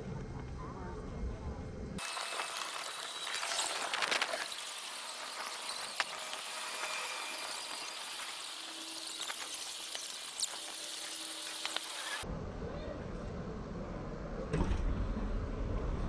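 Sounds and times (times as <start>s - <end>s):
steady airy hiss: 2.0s - 12.2s
low rumble: 12.2s - 16.0s.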